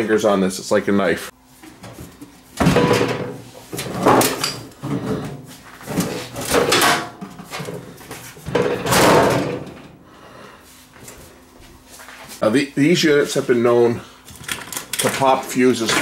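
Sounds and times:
sheet metal scraping and rattling: 0:08.4 - 0:09.9.

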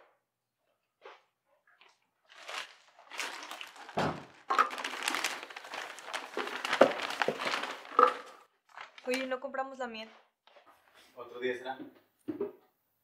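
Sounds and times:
plastic bags rustling: 0:02.2 - 0:09.4.

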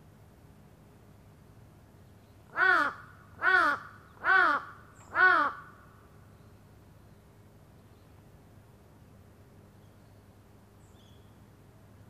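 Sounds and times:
crow cawing: 0:02.5 - 0:05.9.

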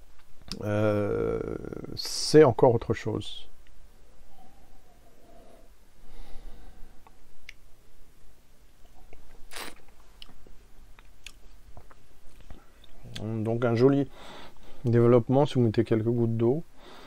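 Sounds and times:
wet mouth clicks: 0:08.8 - 0:10.4.

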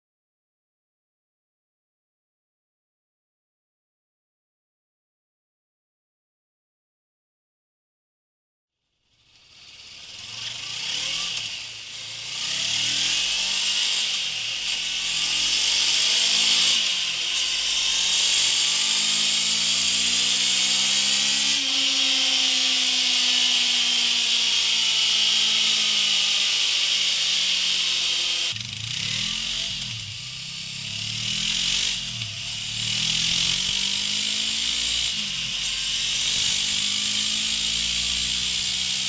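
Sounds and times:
motorcycle engine revving: 0:09.1 - 0:39.0
tyre hissing on dyno roller: 0:09.4 - 0:39.0.

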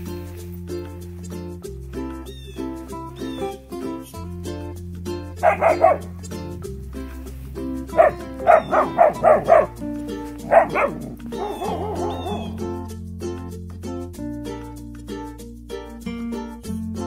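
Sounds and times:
background music: 0:00.0 - 0:17.0
puppy barking: 0:05.4 - 0:06.2, 0:07.9 - 0:09.8, 0:10.4 - 0:12.6.

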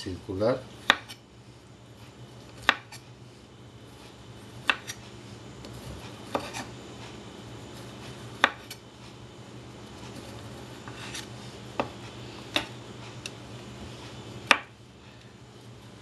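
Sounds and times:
knife chopping on cutting board: 0:00.8 - 0:01.2, 0:02.6 - 0:03.0, 0:04.6 - 0:05.0, 0:05.7 - 0:06.7, 0:08.3 - 0:08.8, 0:10.2 - 0:12.8, 0:14.4 - 0:14.8.

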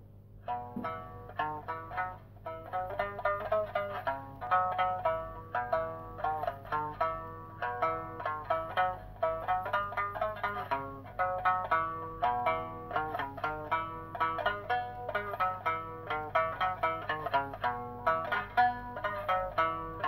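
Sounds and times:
plucked lute melody: 0:00.4 - 0:20.0.

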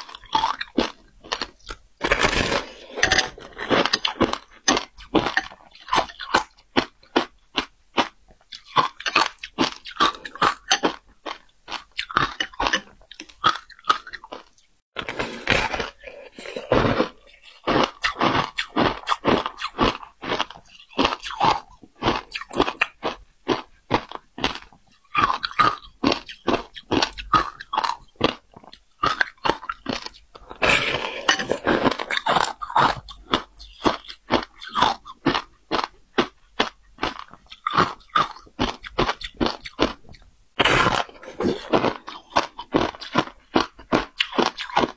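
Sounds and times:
crisp crunching of shaved ice: 0:00.1 - 0:04.4.

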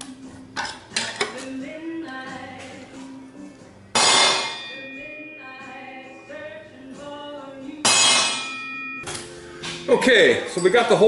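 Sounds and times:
background music with singing: 0:00.0 - 0:11.0
hammer striking metal punch: 0:04.0 - 0:05.0, 0:07.8 - 0:09.1.

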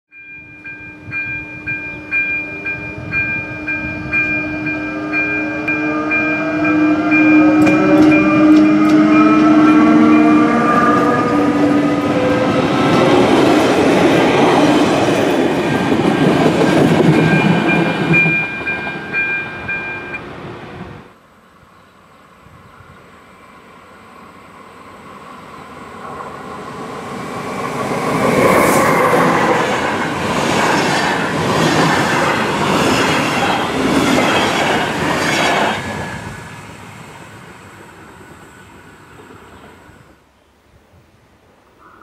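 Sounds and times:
warning bell ringing: 0:00.1 - 0:12.6, 0:15.1 - 0:20.2
train traction whine: 0:00.1 - 0:40.4
coaches rattling over rails: 0:05.6 - 0:20.2, 0:25.9 - 0:38.4.

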